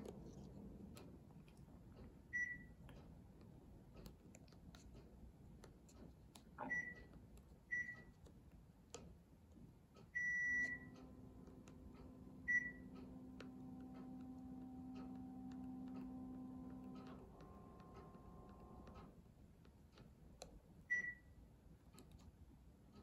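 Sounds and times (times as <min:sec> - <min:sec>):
air conditioner humming: 0:00.0 - 0:23.0
air conditioner beeps: 0:02.3 - 0:02.8, 0:06.6 - 0:07.1, 0:07.7 - 0:08.2, 0:10.0 - 0:19.1, 0:20.8 - 0:21.4.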